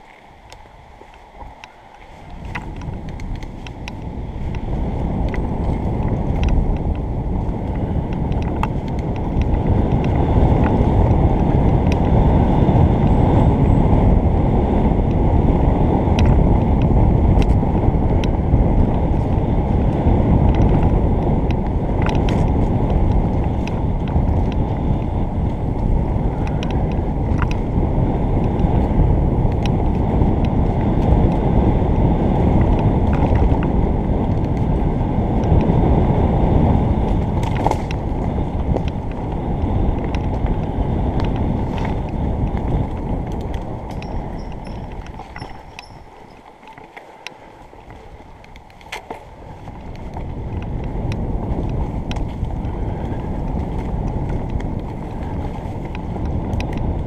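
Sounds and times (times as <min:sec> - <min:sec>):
bike clicks and rattles: 0:00.0 - 0:57.0
bike tyres rumbling on dirt: 0:00.0 - 0:57.0
wind buffeting microphone: 0:00.0 - 0:57.0.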